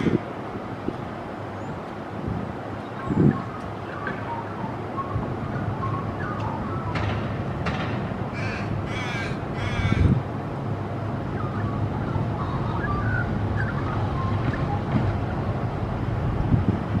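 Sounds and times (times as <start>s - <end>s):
raven cawing: 0.0s - 0.3s, 8.3s - 10.2s
road traffic rumble: 0.0s - 17.0s.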